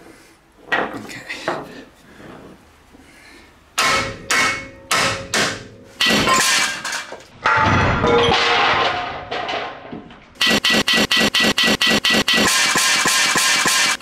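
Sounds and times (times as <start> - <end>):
hammer striking metal: 3.8 - 8.7, 12.3 - 14.0
metal part clanging and rattling: 6.0 - 9.8.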